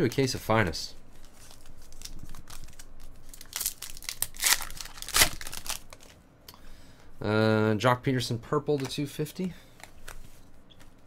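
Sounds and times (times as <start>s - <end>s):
cards rustling: 0.2s - 6.2s
foil wrapper crinkling: 1.2s - 6.2s.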